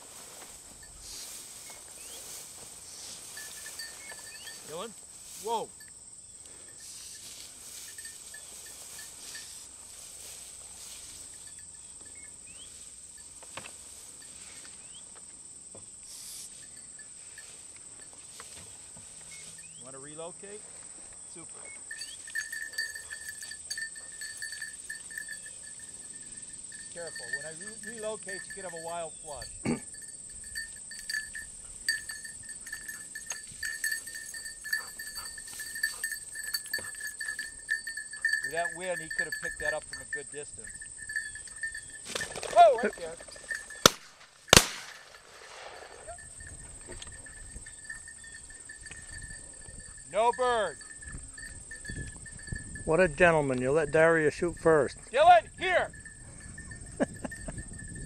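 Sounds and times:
faint rustles: 0.0 - 5.6, 6.4 - 15.1
insects trilling: 0.0 - 58.0.

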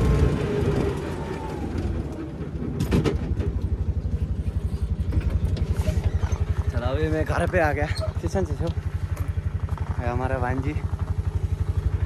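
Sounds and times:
small engine throbbing: 3.4 - 12.0.

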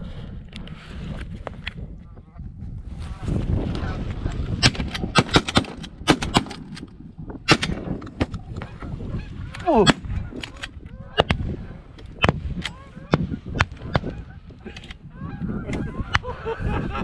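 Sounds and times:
geese honking: 12.7 - 16.6.

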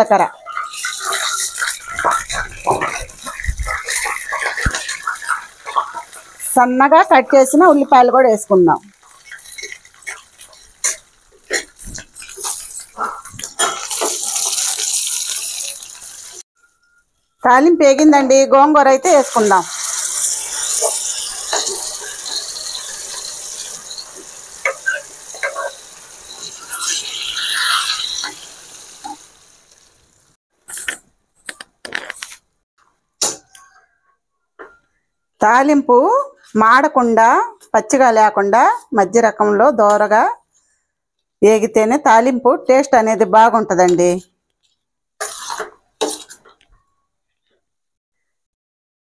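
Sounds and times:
onions sizzling in hot oil: 0.0 - 16.4, 19.0 - 30.4, 45.2 - 46.4
metal spatula clinking and scraping: 0.3 - 6.4, 9.0 - 15.9, 20.0 - 28.4, 45.2 - 46.6.

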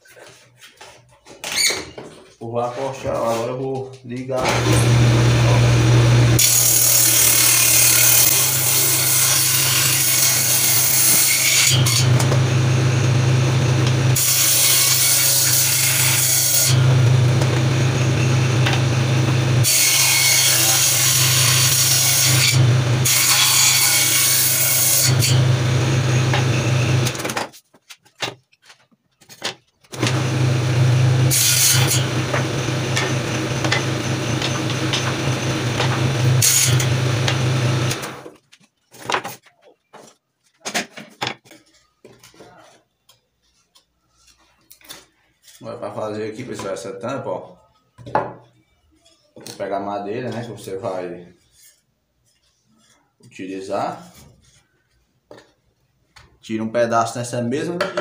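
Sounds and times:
table saw motor humming: 4.4 - 27.3, 29.9 - 38.3
saw blade rasping through wood: 4.5 - 12.7, 30.0 - 38.1.

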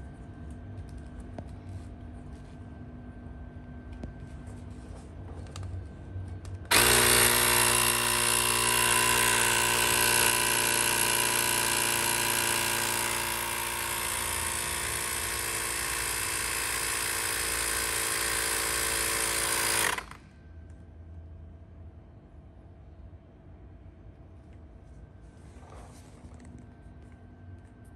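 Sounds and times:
electric inflator compressor running: 6.7 - 20.2.

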